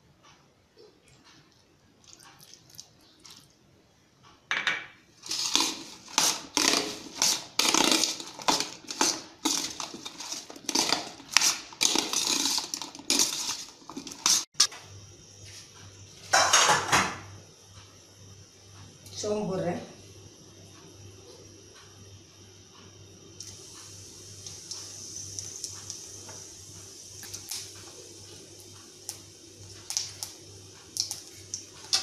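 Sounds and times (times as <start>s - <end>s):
spoon scraping steel bowl: 5.2s - 14.7s.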